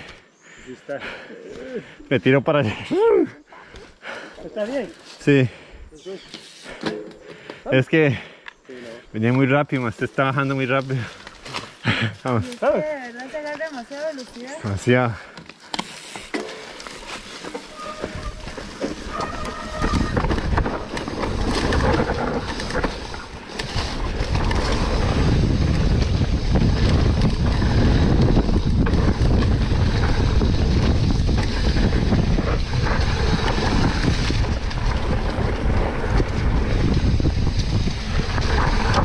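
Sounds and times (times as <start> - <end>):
bike rattling over rough ground: 9.2 - 39.0
wind buffeting microphone: 17.7 - 39.0.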